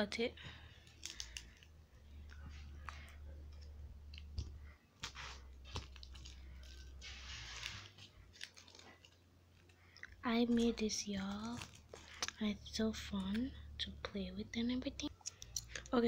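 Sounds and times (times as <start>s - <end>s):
plastic wrapping crinkling: 0.7s - 13.6s
small clicks and crackles: 0.8s - 12.4s.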